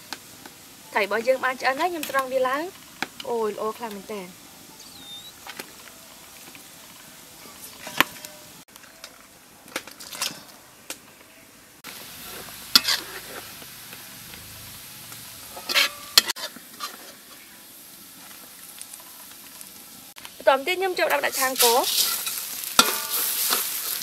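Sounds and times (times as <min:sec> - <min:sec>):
steady hiss: 0:00.0 - 0:09.8, 0:10.5 - 0:24.0
utensils clinking on steel pot: 0:09.7 - 0:10.6, 0:15.5 - 0:17.0, 0:21.2 - 0:24.0.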